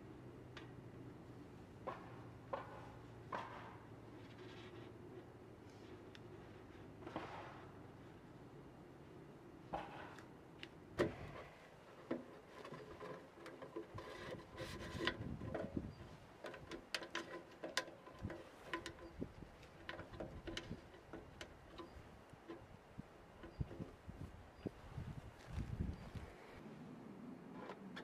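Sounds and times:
hose clamp tightened with screwdriver: 12.0s - 22.7s.

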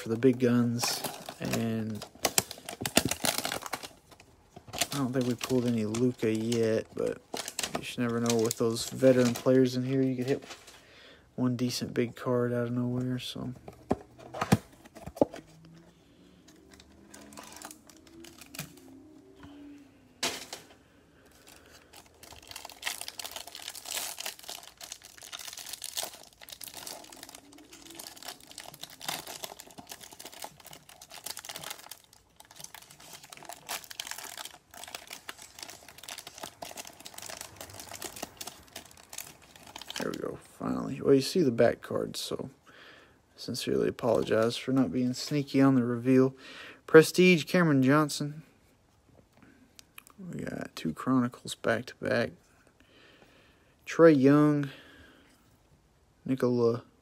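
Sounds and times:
plastic wrapper crinkling and tearing: 0.0s - 10.8s, 16.5s - 19.2s, 21.3s - 40.9s.

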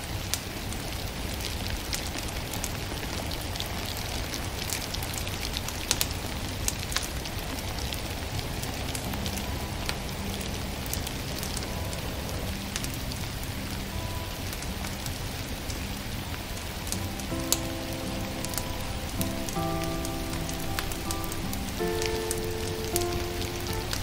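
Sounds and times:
steady hiss: 0.0s - 24.0s
wood fire crackling: 0.0s - 24.0s
soft music: 7.6s - 24.0s.

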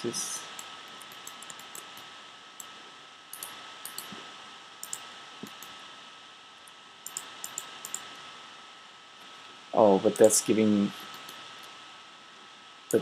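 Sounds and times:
steady hiss: 0.0s - 13.0s
computer mouse clicks: 0.5s - 2.7s, 3.3s - 4.2s, 4.8s - 5.8s, 7.0s - 8.2s, 10.2s - 10.4s, 11.1s - 11.4s.

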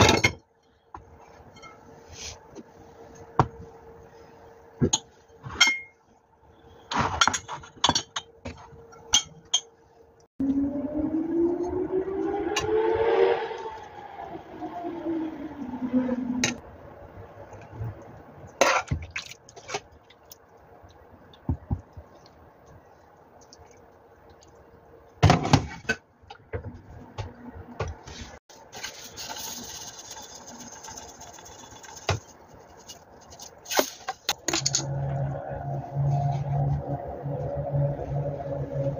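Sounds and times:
shaker bottle rattling: 28.8s - 33.6s.

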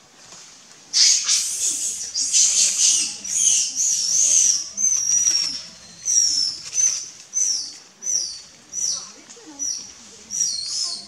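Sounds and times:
baby monkey squealing: 1.0s - 4.9s.

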